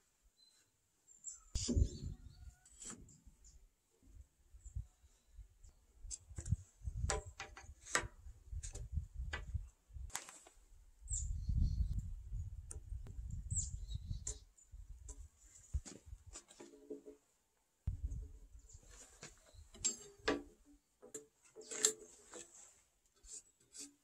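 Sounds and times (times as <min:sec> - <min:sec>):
bird chirps: 0:00.4 - 0:02.6, 0:11.0 - 0:12.0, 0:13.4 - 0:14.6
clicks and knocks of wood: 0:06.1 - 0:10.5.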